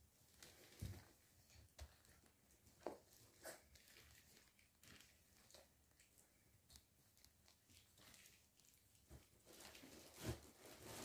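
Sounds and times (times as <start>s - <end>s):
puppies scuffling on blankets: 0.0s - 11.0s.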